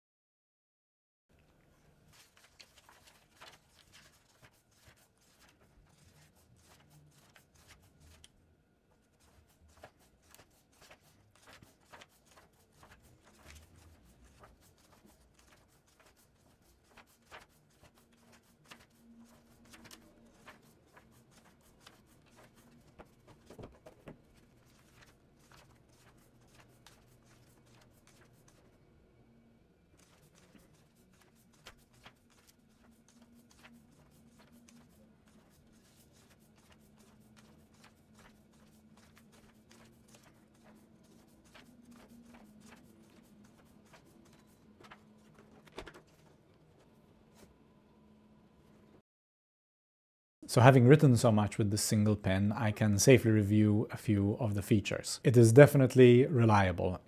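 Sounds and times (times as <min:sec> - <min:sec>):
notebook pages rustling and clicking: 0:01.4 - 0:08.4, 0:09.0 - 0:28.8, 0:29.9 - 0:47.6.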